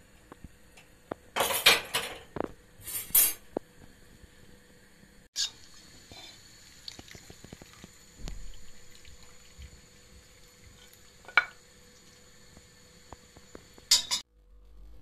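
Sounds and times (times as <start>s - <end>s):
broth splashing and dripping: 5.9s - 13.8s.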